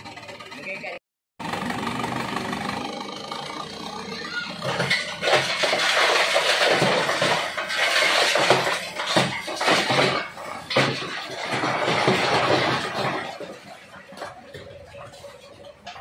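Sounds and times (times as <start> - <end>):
dump truck engine running: 0.0 - 16.0
soil and rocks sliding out: 4.4 - 16.0.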